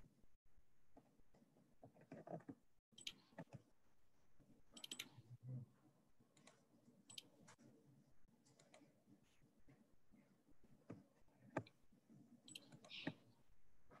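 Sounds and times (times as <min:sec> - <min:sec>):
faint clicking and tapping: 0:04.4 - 0:14.0.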